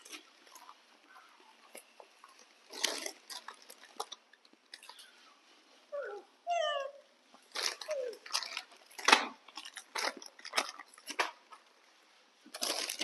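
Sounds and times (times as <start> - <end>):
monkeys crunching crackers: 0.0 - 5.2, 7.4 - 11.8
plastic wrappers crinkling: 0.0 - 5.6, 7.4 - 13.0.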